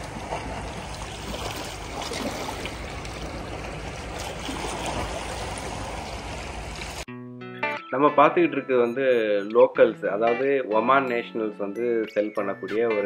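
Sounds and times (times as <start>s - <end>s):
sea water splashing: 0.0s - 7.1s.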